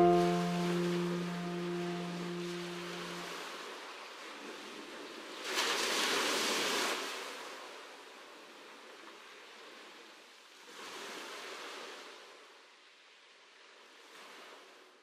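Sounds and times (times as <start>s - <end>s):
ocean waves washing in: 0.0s - 3.3s.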